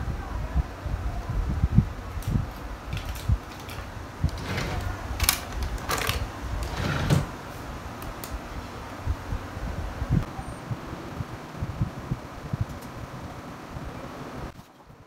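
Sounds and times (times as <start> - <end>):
paper rustling: 2.2 - 6.3.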